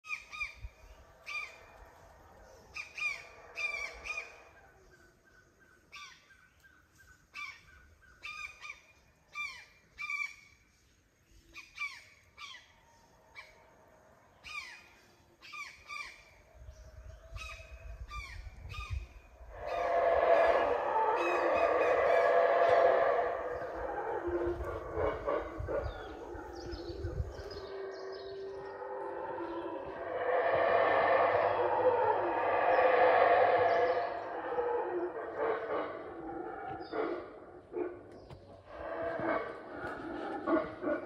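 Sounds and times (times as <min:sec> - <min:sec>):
howler monkeys roaring: 0:00.9 - 0:05.0, 0:19.3 - 0:41.0
faint low howling: 0:16.4 - 0:41.0.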